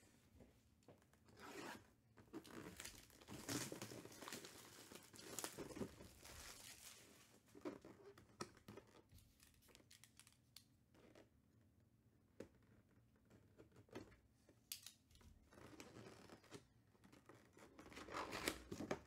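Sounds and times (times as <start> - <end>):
plastic shrink wrap crinkling and tearing: 2.4 - 10.7.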